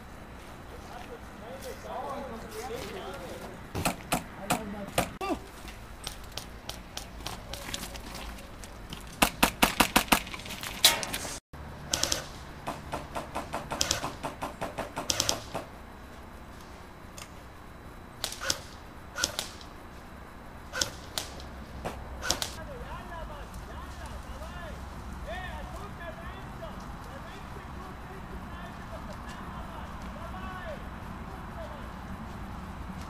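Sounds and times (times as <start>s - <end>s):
airsoft rifle shots: 9.2s - 11.3s, 11.9s - 15.7s, 18.2s - 19.7s, 20.7s - 22.6s.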